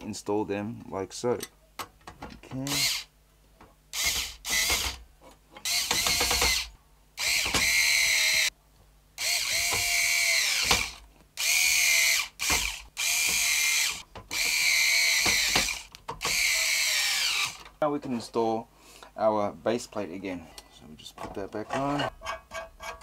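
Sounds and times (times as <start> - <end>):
power screwdriver whining: 4.0 - 5.0, 5.6 - 8.5, 9.2 - 17.6.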